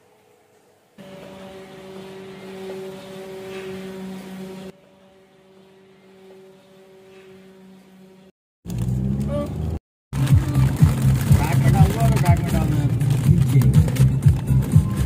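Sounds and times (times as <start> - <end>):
steady humming drone: 0.0 - 8.3.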